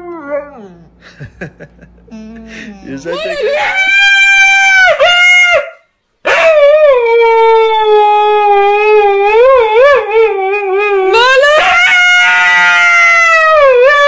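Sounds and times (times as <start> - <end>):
husky howling: 3.1 - 5.7, 6.3 - 14.0.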